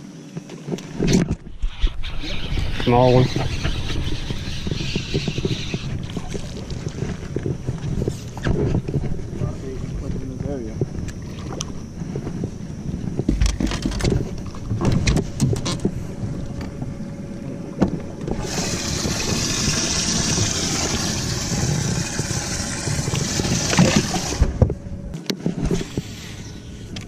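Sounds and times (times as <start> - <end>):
clunks and rattles on boat deck: 13.0 - 16.9
running water rushing: 18.4 - 24.6.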